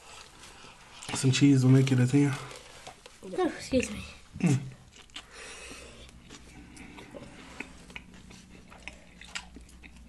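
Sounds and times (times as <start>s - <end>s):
chewing with mouth clicks: 4.7s - 10.0s.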